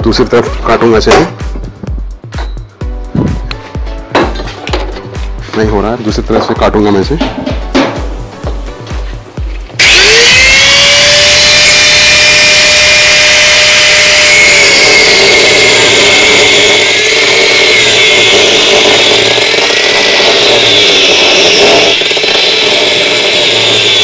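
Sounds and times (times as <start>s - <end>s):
angle grinder cutting metal: 9.6s - 24.0s.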